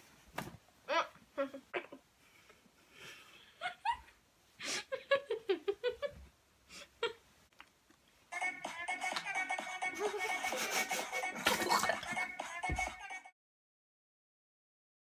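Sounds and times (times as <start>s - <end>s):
stifled laughter: 9.6s - 12.4s.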